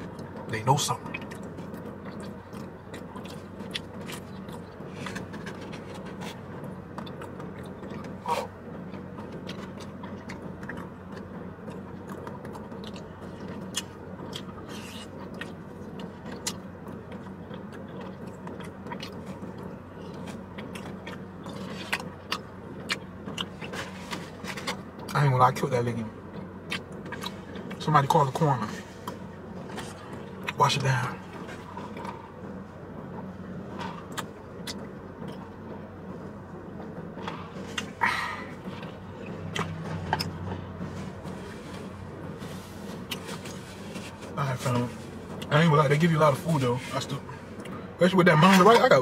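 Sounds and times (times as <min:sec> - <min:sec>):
steady low hum: 0:00.0 - 0:49.0
chewing mouth sounds: 0:01.0 - 0:25.2, 0:26.2 - 0:27.9, 0:33.6 - 0:35.6, 0:37.1 - 0:44.3.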